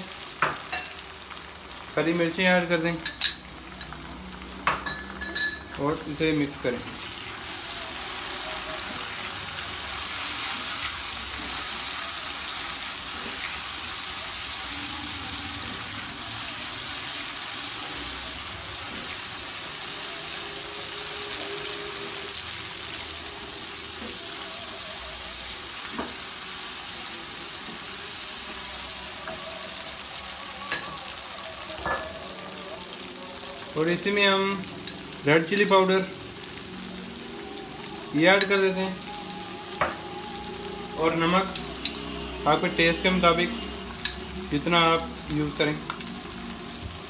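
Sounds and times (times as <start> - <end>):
vegetables sizzling in hot oil: 0.0 - 47.0
spatula stirring in pan: 6.9 - 20.0.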